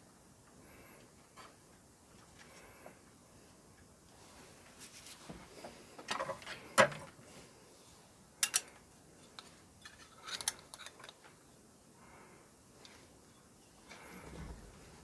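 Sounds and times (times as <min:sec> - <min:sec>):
small plastic and metal parts clicking: 0:09.4 - 0:11.3.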